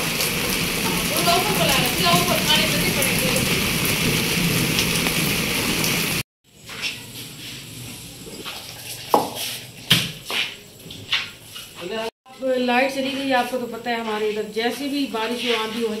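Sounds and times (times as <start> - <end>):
heavy rain pouring: 0.0 - 6.2.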